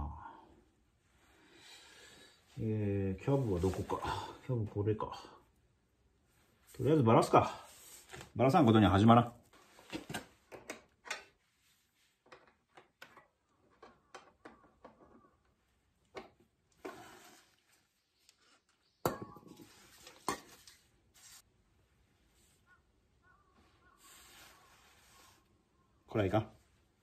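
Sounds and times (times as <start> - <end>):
small clicks knocks and rustles: 12.2 - 16.8.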